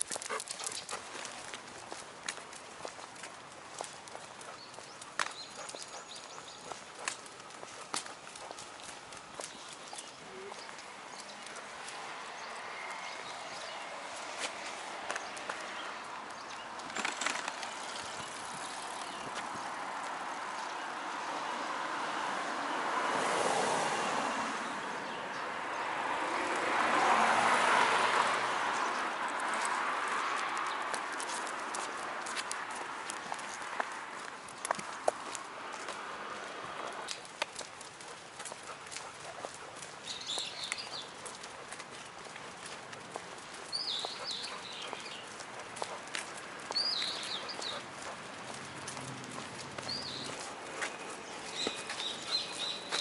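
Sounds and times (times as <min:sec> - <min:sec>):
cart wheels rolling over asphalt: 0:00.0 - 0:53.0
footsteps on paved path: 0:00.0 - 0:53.0
bird chirping: 0:04.4 - 0:08.6, 0:40.0 - 0:41.2, 0:43.6 - 0:45.9, 0:46.7 - 0:48.1, 0:49.8 - 0:53.0.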